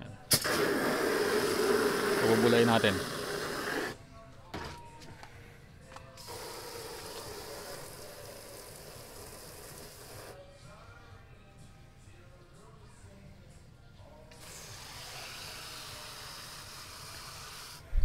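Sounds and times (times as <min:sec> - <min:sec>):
water spraying into suds: 0:00.3 - 0:04.0.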